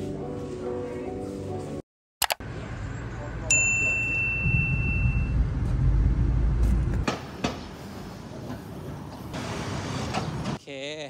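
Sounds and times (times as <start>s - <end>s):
street noise: 0.0s - 10.6s
sharp clicks: 2.2s - 2.4s
road traffic rumble: 2.4s - 10.6s.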